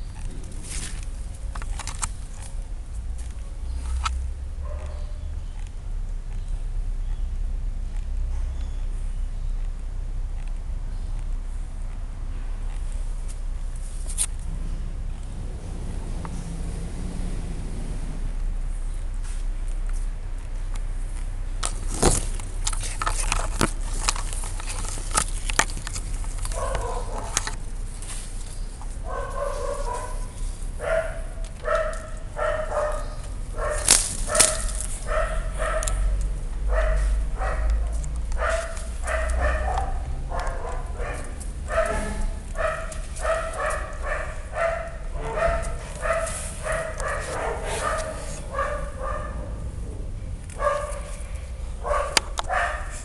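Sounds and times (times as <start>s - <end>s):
low rumble: 0.0s - 20.0s, 24.6s - 52.5s
small dog yapping: 26.5s - 27.5s, 29.0s - 49.7s, 50.6s - 53.0s.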